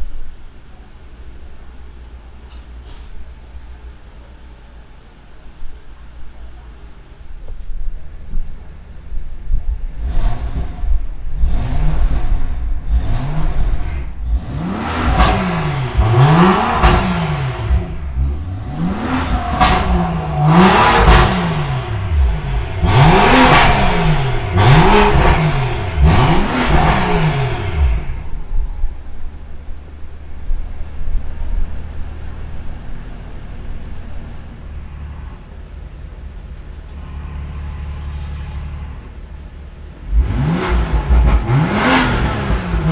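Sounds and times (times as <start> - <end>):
car engine revving in blips: 9.9 - 29.5, 30.2 - 42.9.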